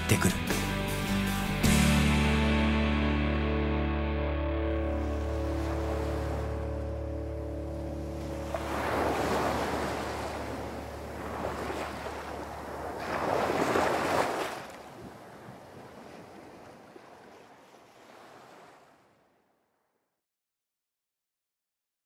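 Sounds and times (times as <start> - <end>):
sea waves washing ashore: 4.6 - 19.6.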